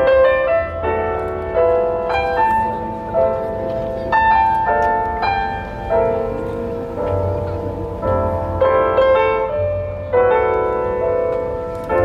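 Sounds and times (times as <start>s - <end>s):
slow keyboard melody: 0.0s - 12.0s.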